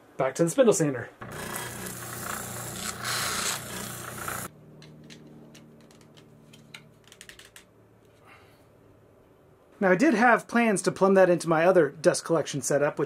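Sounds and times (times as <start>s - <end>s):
sander motor humming: 1.2s - 6.7s.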